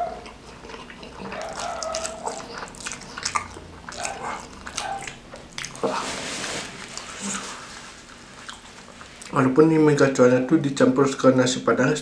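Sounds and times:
close chewing and mouth smacks: 0.0s - 6.0s, 6.8s - 9.4s.

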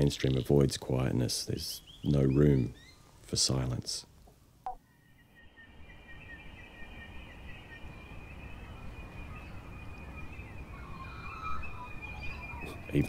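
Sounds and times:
falling chirp: 4.7s - 13.0s.

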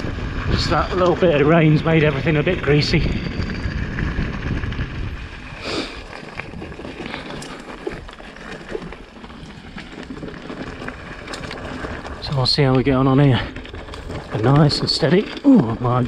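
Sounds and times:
wind buffeting microphone: 0.0s - 8.5s
mountain bike on stony trail: 0.0s - 16.0s.

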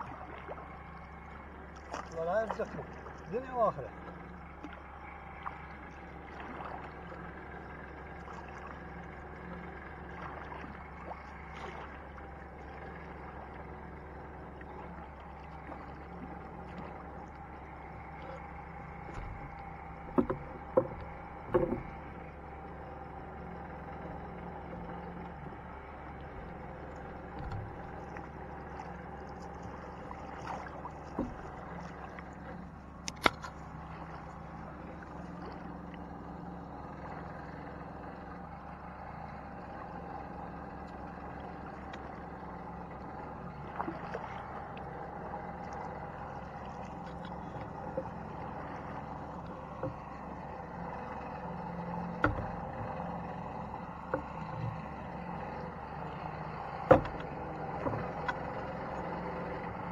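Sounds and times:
engine-like hum: 0.0s - 59.9s
paddle knocking on boat hull: 18.0s - 22.5s, 24.0s - 34.5s, 46.7s - 55.4s, 56.6s - 59.8s.

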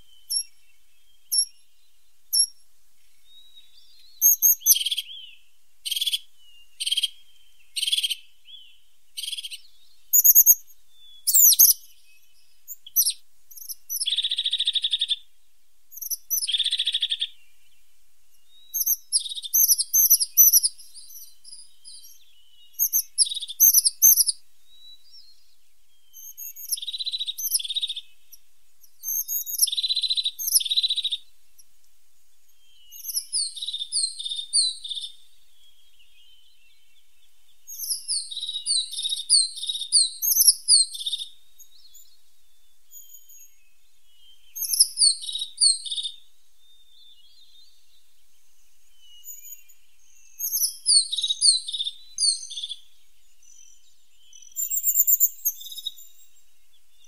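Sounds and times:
buzzy rolling bird trills: 9.2s - 11.9s, 54.4s - 56.3s.

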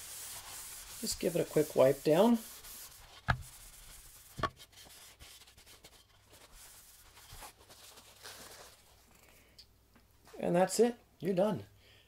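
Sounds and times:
paper towel rubbing wood: 0.0s - 8.8s.

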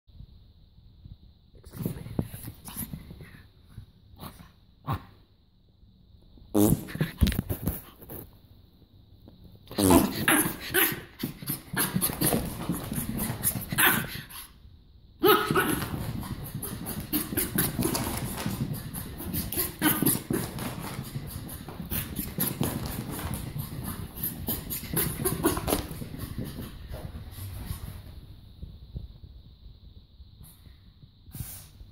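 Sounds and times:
fake farts blown with mouth: 6.5s - 7.3s, 9.7s - 10.3s
small dog growling: 9.7s - 14.5s, 15.2s - 27.0s.

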